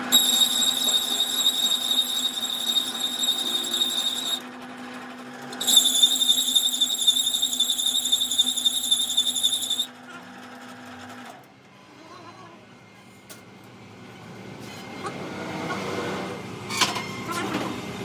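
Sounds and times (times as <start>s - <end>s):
lathe motor humming: 0.0s - 4.5s
lathe threading tool squealing: 0.0s - 4.5s, 5.5s - 10.0s.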